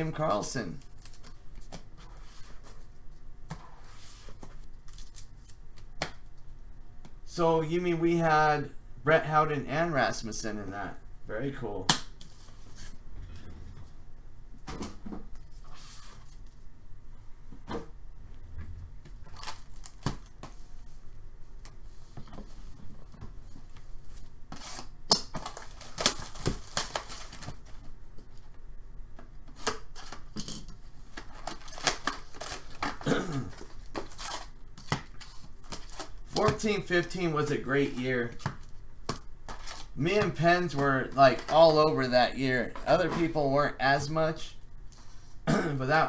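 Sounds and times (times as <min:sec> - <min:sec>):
plastic wrap crinkling and tearing: 0:19.2 - 0:20.3, 0:24.6 - 0:27.7, 0:31.2 - 0:36.2, 0:39.5 - 0:40.0
foil packs rustling: 0:24.6 - 0:27.8, 0:31.2 - 0:36.5, 0:39.5 - 0:41.8.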